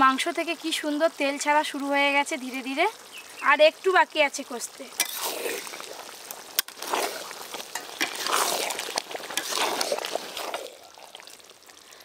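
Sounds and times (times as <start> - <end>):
curry being stirred: 5.0 - 11.8
ladle clicking on pan: 6.5 - 10.5.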